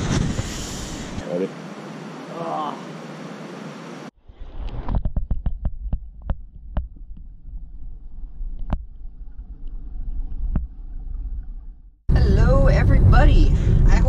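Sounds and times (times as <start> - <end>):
low underwater rumble: 5.2 - 14.0.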